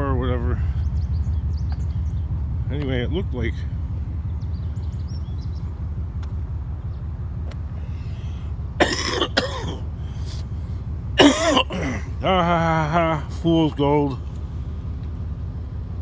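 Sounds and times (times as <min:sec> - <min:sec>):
truck engine rumble: 0:00.0 - 0:16.0
person coughing: 0:08.8 - 0:09.9, 0:11.2 - 0:12.1.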